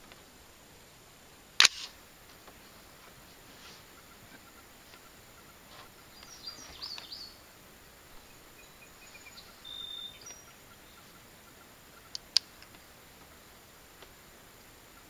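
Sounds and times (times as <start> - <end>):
short sharp clicks: 1.6 - 2.0
birds chirping and whistling: 5.8 - 7.4, 8.2 - 11.2.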